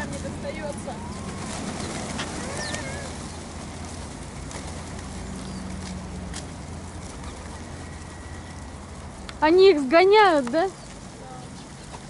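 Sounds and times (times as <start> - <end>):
pigeon cooing: 0.0 - 3.4
wing flaps: 0.0 - 9.2.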